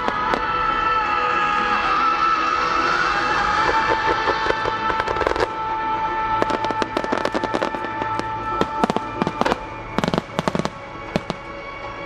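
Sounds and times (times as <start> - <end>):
fireworks bursting: 0.0 - 1.0, 3.1 - 11.7
music with long held tones: 0.0 - 12.0.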